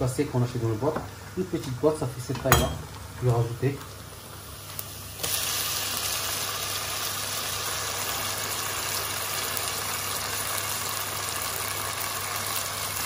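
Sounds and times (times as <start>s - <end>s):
tomatoes sizzling in hot oil: 0.0s - 13.0s.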